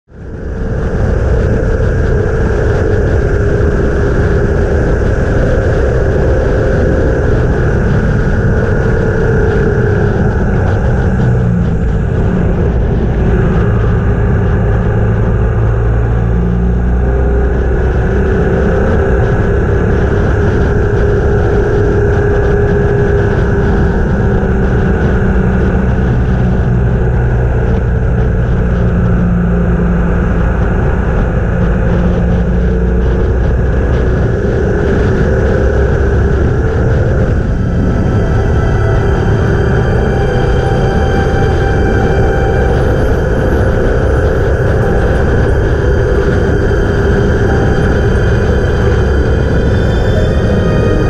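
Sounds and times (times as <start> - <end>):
motorcycle engine running: 0.0 - 51.0
loud rushing noise: 0.1 - 51.0.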